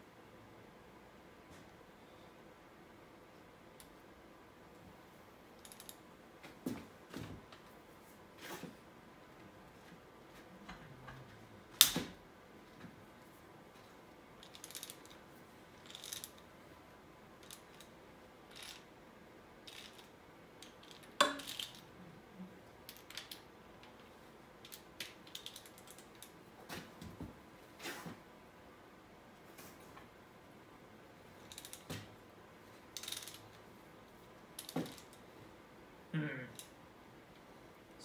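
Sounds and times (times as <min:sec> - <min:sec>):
ratchet wrench clicking: 0:18.5 - 0:18.8, 0:19.7 - 0:21.7, 0:33.0 - 0:33.4.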